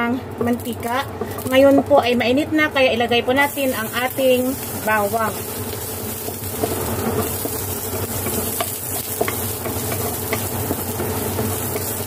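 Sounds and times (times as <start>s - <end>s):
garlic sizzling in oil: 0.4s - 12.0s.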